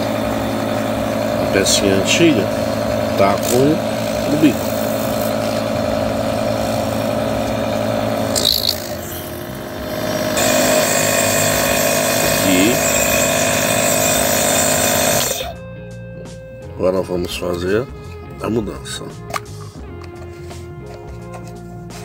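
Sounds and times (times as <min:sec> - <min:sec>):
nebulizer compressor humming: 0:00.0 - 0:16.4.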